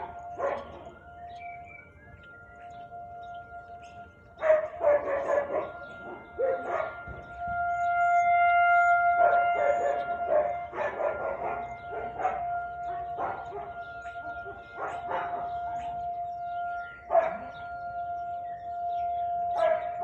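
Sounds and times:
dog barking: 0.0 - 0.9, 4.4 - 7.1, 9.2 - 16.0, 17.1 - 17.6, 19.6 - 20.0
dog howling: 4.4 - 7.0, 9.2 - 16.4, 19.4 - 20.0.

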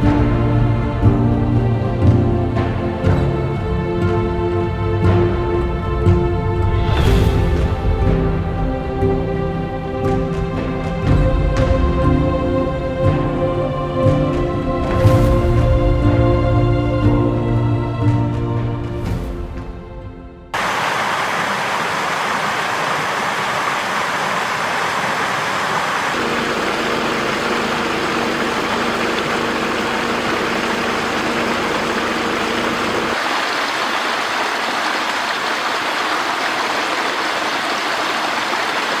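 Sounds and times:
stream rushing over rocks: 20.6 - 39.0.

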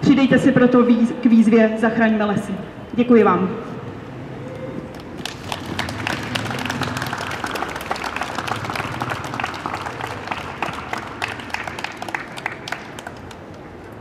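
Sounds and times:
audience applauding: 4.9 - 13.7.

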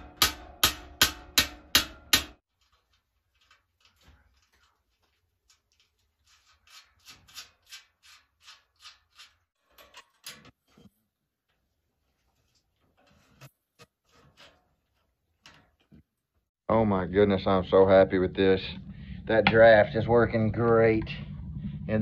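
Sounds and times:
tool striking steel shell: 0.0 - 2.4.

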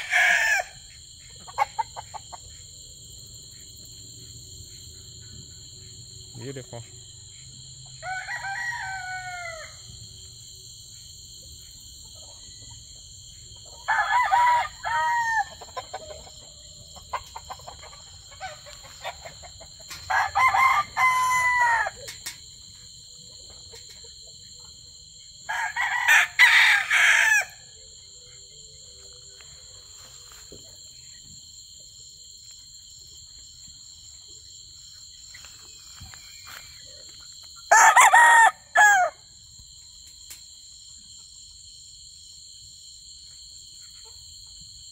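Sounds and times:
roosters crowing: 0.0 - 2.4, 7.5 - 10.5, 13.5 - 22.2, 25.4 - 27.8, 37.7 - 39.2.

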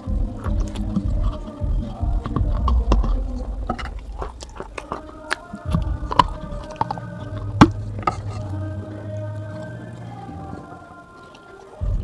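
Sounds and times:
teeth crunching clay pot: 0.0 - 12.0.

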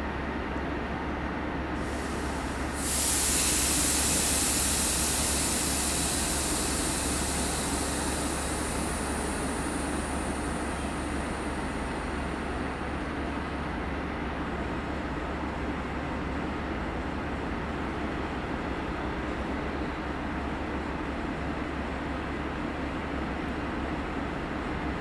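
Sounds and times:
compressed air hissing: 1.8 - 12.7
electric locomotive humming: 1.8 - 18.9.

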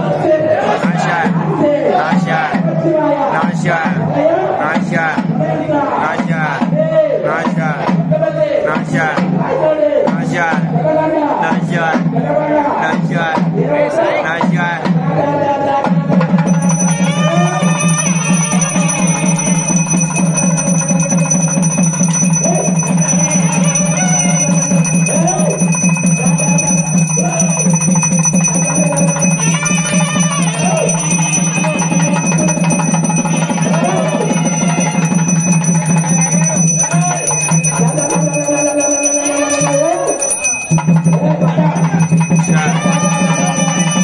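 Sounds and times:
man chanting through loudspeaker: 0.0 - 16.2
bell ringing: 16.3 - 44.0.

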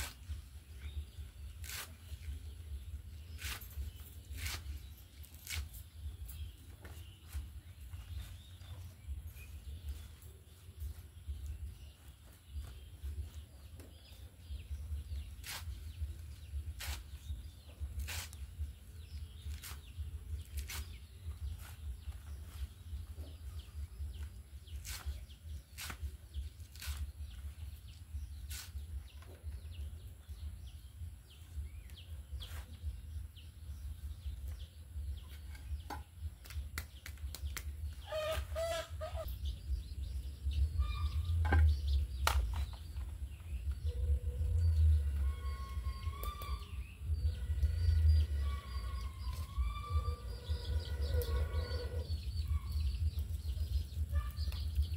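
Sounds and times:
leaves snapping as sliced: 1.6 - 2.0, 25.7 - 27.1
low rumble: 43.0 - 54.9.

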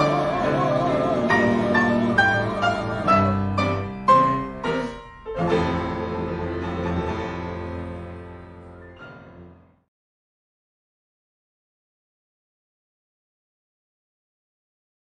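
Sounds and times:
piano playing: 0.0 - 9.9.

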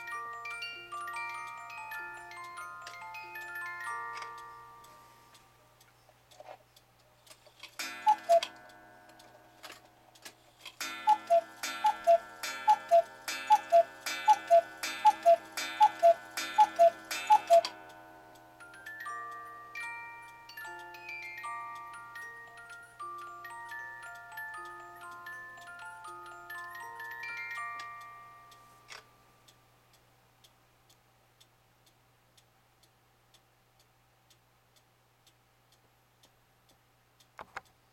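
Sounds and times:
music box notes: 0.0 - 6.1, 7.7 - 29.7
cuckoo clock call: 0.0 - 6.2, 7.1 - 29.6
faint clock ticking: 0.0 - 37.9.

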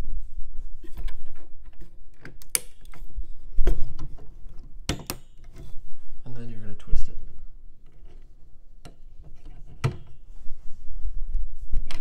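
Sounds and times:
rubbing and handling noise: 0.0 - 12.0
plastic push-pins snapping: 2.1 - 3.0.

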